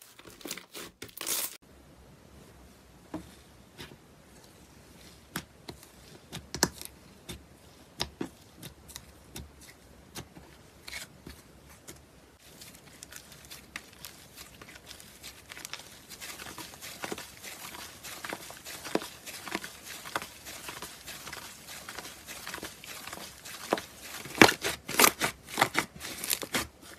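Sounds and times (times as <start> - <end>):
slime crackling: 12.4 - 26.9.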